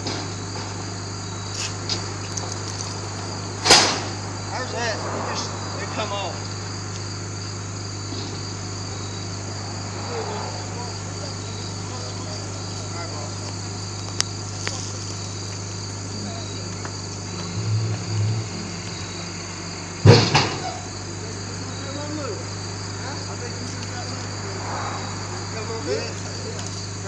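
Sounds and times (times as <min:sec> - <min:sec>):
loud clunk: 0:00.0 - 0:00.7, 0:03.6 - 0:04.2, 0:20.0 - 0:20.8
crickets chirring: 0:00.0 - 0:27.0
low engine drone: 0:01.8 - 0:21.8, 0:22.9 - 0:27.0.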